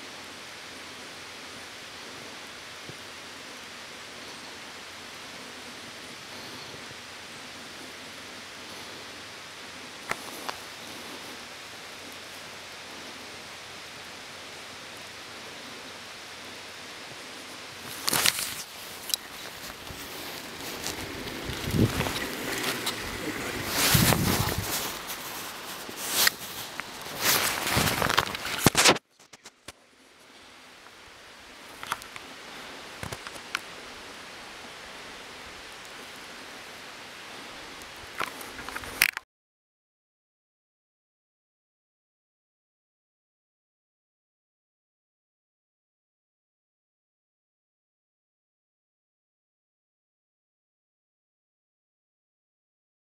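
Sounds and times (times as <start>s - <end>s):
steady background hiss: 0.0s - 39.1s
steady rushing outdoor noise: 0.0s - 39.1s
camera handling rustling and knocking: 17.9s - 29.7s.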